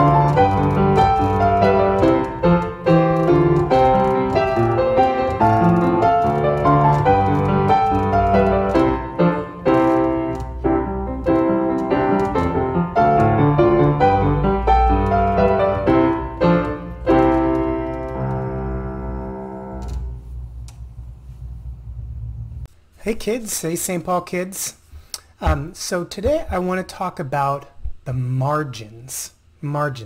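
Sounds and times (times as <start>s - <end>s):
upright piano playing hymn: 0.0s - 21.1s.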